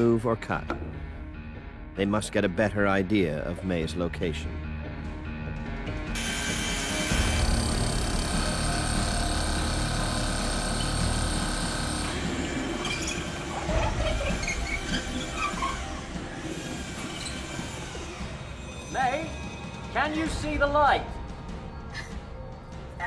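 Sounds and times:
drill boring through concrete: 0:06.2 - 0:12.6.

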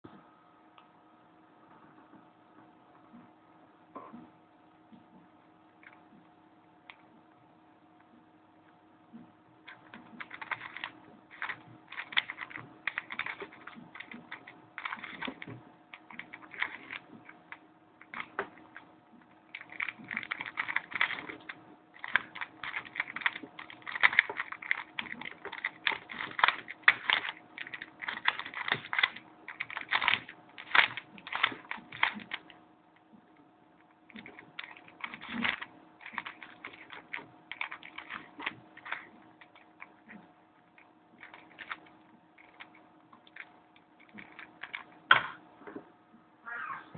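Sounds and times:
plastic puzzle clicking: 0:09.7 - 0:17.4, 0:19.5 - 0:32.5, 0:34.1 - 0:40.2, 0:40.8 - 0:45.3.

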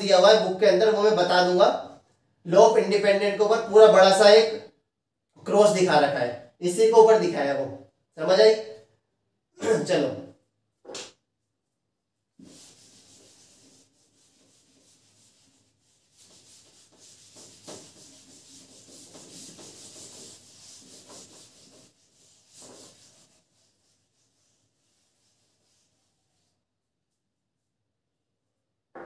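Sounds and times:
eraser rubbing on board: 0:12.4 - 0:26.5.

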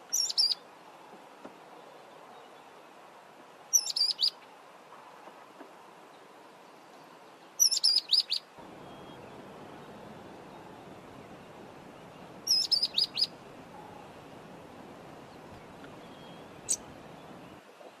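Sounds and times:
bird whistled calls: 0:07.6 - 0:10.9, 0:12.4 - 0:14.0, 0:15.9 - 0:17.6.

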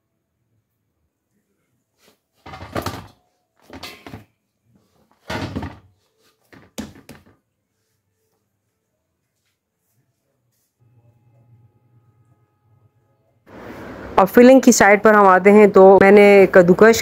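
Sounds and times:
dough thudding in metal bowl: 0:02.4 - 0:04.3, 0:05.2 - 0:05.9, 0:06.5 - 0:07.4.

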